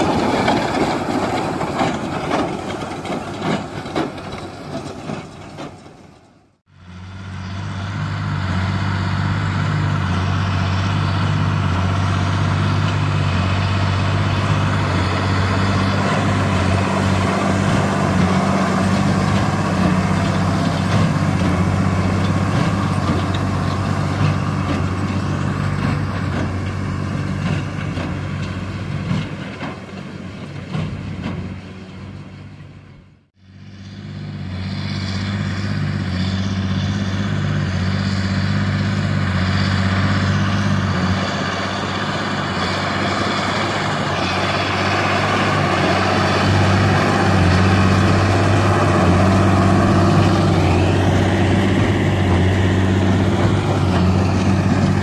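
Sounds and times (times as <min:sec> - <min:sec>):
square baler working: 0:00.0 - 0:32.9, 0:33.5 - 0:55.0
diesel tractor running under load: 0:00.0 - 0:55.0.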